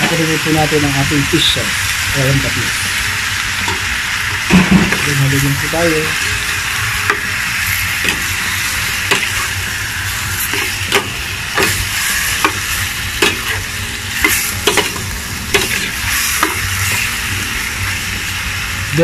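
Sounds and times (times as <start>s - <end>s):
chicken sizzling in oil: 0.0s - 19.0s
metal spoon scraping a pan: 6.1s - 17.1s.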